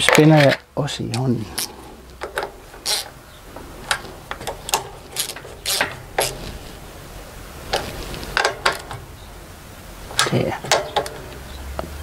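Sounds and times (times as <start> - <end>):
hand ratchet clicking: 2.2 - 3.2, 3.9 - 6.4.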